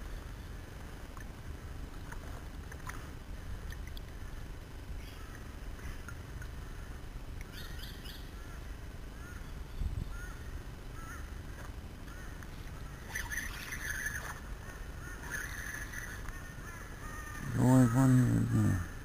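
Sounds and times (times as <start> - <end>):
birds chirping and whistling: 12.9 - 17.8
harsh bird call: 15.0 - 19.0.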